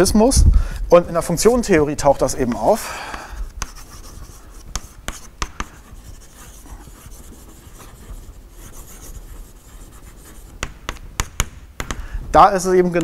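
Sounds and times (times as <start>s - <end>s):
chalk tapping on blackboard: 2.4s - 12.0s
chalk scratching on blackboard: 3.4s - 11.5s.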